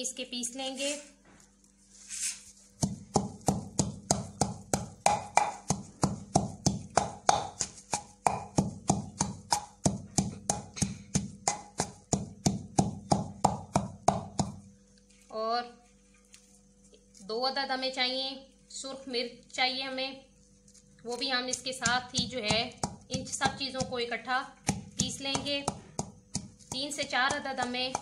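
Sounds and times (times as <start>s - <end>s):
pestle pounding in mortar: 2.8s - 14.7s, 21.5s - 28.0s.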